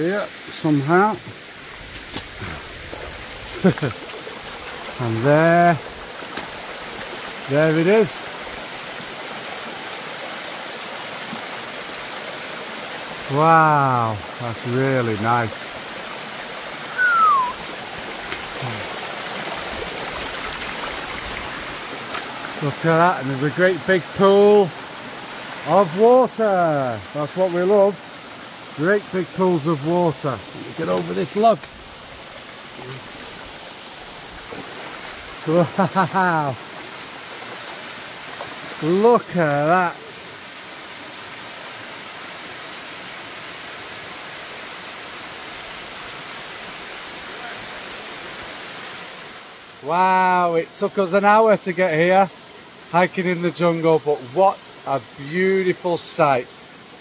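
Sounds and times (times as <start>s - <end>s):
waterfall rushing: 0.0s - 57.0s
short falling whistle: 16.9s - 17.6s.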